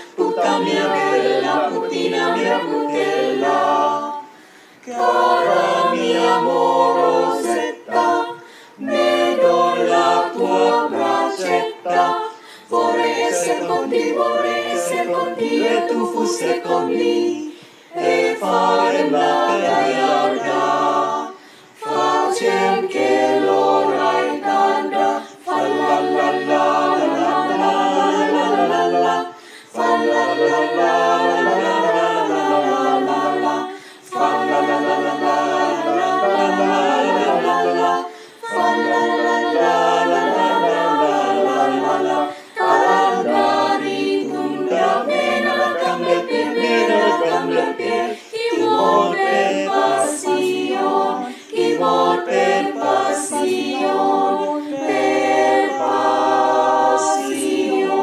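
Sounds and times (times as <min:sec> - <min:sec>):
mixed choir singing a cappella: 0:00.0 - 0:58.0.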